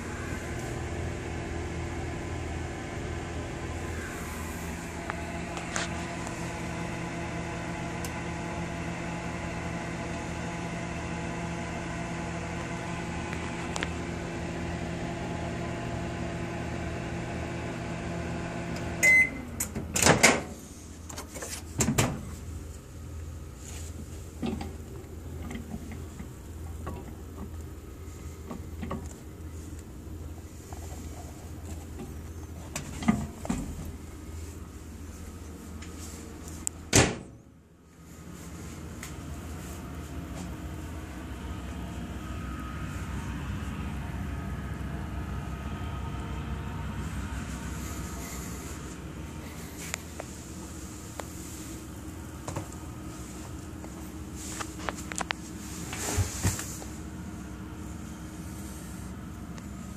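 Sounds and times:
microwave oven humming: 0.0s - 59.9s
microwave beep: 19.0s - 19.6s.

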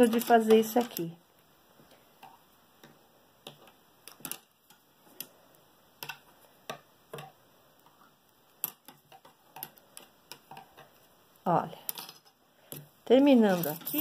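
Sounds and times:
knitting needles clicking: 0.0s - 1.1s.

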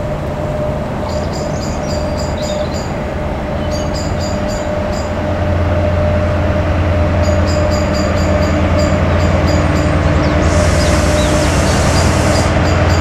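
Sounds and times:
diesel locomotive engine rumble: 0.0s - 13.0s
steady whine: 0.0s - 13.0s
high chirps: 7.2s - 13.0s.

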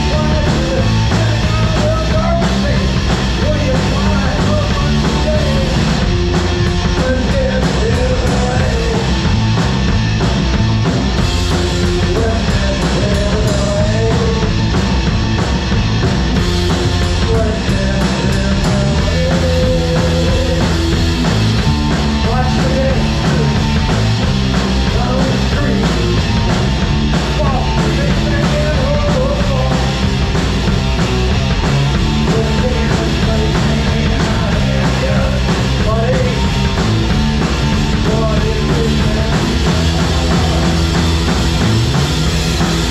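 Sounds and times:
man singing: 0.0s - 9.3s, 11.4s - 14.7s, 16.8s - 21.1s, 22.1s - 24.0s, 24.8s - 26.4s, 27.2s - 30.1s, 32.0s - 41.2s
drum kit: 0.0s - 42.9s
electric guitar: 0.0s - 42.9s.

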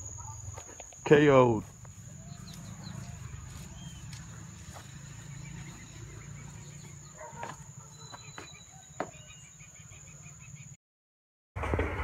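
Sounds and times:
faint chirping: 0.0s - 10.8s.

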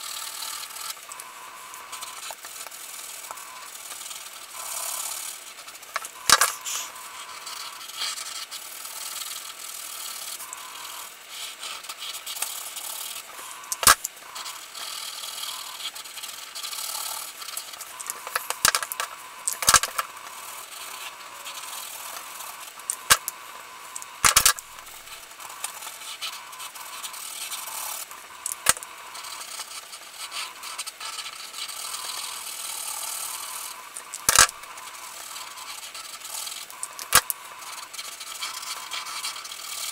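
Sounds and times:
marker scratching on card: 6.4s - 6.9s.

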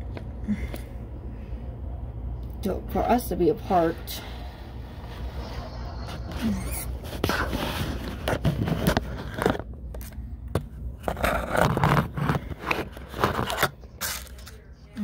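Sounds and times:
skin and fabric brushing microphone: 5.0s - 8.8s
phone being handled: 7.2s - 14.6s.

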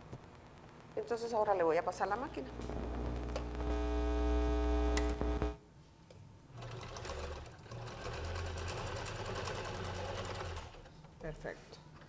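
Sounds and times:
steady hum: 0.0s - 5.8s
sewing machine stitching: 6.6s - 10.9s.

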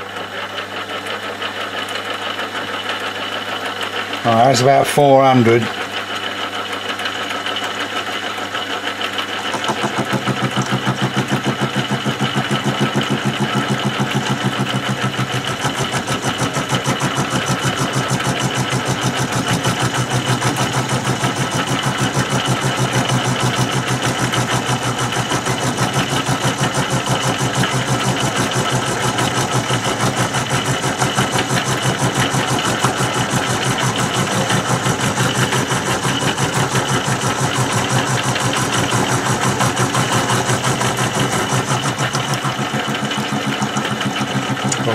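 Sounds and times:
milling cutter chattering on metal: 5.6s - 44.9s.

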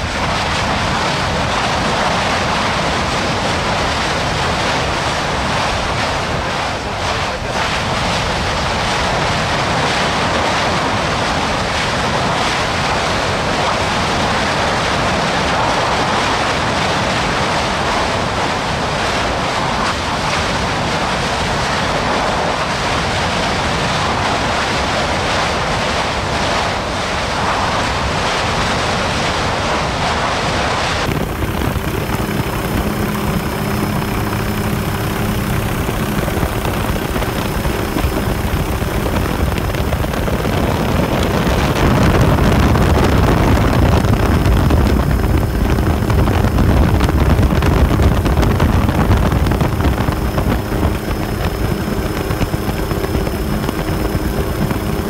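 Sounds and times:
aircraft engine drone: 0.0s - 55.0s
lava fountain rushing: 0.0s - 55.0s
thin high whine: 30.4s - 55.0s.

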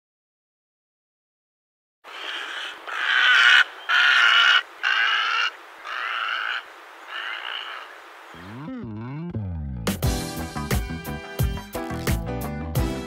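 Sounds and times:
bird harsh rasping calls: 2.1s - 8.7s.

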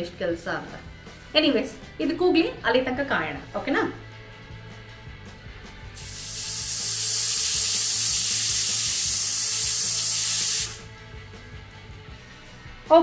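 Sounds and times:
pressure cooker hissing whistle: 6.0s - 10.9s.

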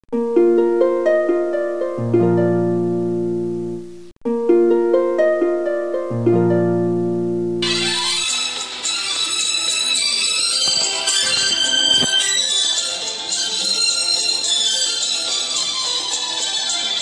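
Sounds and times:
hissy music recording: 0.1s - 17.0s
plucked ringing notes over low drone: 0.4s - 7.9s.

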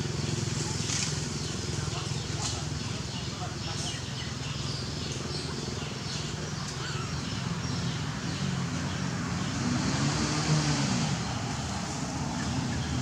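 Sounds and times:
vehicle engine running: 0.0s - 9.9s.

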